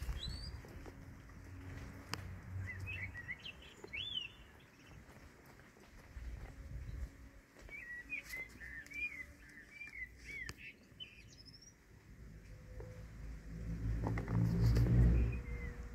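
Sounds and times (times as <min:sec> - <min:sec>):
bird chirping: 0:00.0 - 0:00.8, 0:02.6 - 0:05.3, 0:07.7 - 0:13.0, 0:14.6 - 0:15.9.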